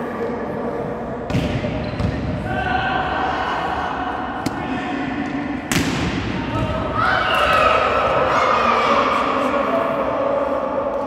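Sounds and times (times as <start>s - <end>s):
volleyball hits: 5.7s - 6.8s.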